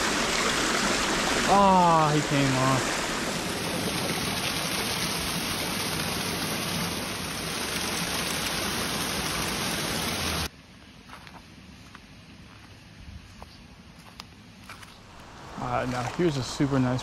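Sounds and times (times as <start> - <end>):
water rushing over weirs: 0.0 - 10.5, 15.0 - 17.0.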